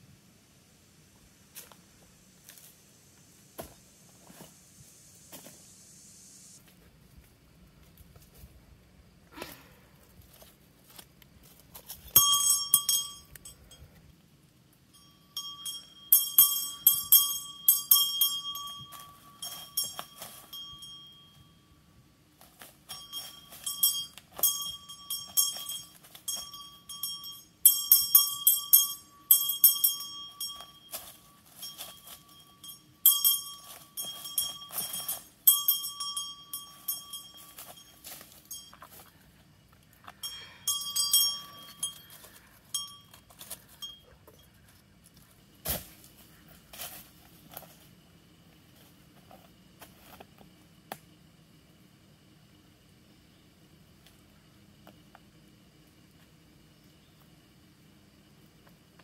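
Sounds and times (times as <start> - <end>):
brass hand bell ringing: 12.2 - 13.7, 14.9 - 21.7, 22.9 - 38.8, 40.2 - 44.2.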